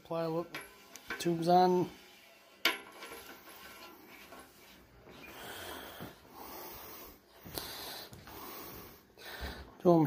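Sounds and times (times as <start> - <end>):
person breathing: 5.1 - 9.8.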